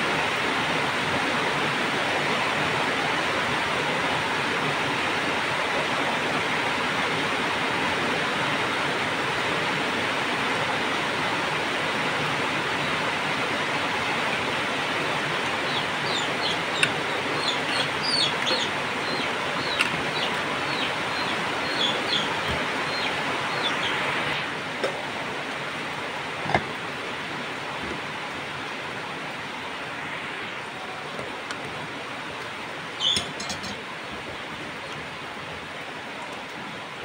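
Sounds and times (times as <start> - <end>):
birds chirping: 13.9 - 24.5, 32.9 - 34.2
metal ladle knocking pot: 33.1 - 33.8.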